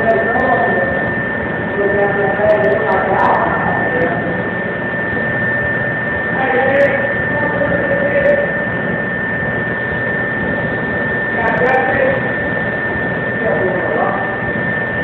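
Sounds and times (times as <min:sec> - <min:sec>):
faint voices: 0:00.0 - 0:05.6
high-pitched whine: 0:00.0 - 0:15.0
loud steady hum and hiss: 0:00.0 - 0:15.0.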